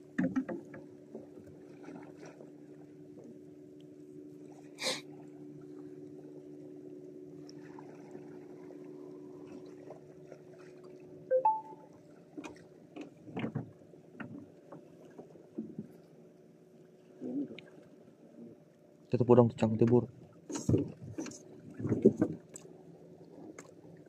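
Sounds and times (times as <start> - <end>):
boat engine humming: 0.0 - 24.0
fishing gear knocking in boat: 0.1 - 0.8.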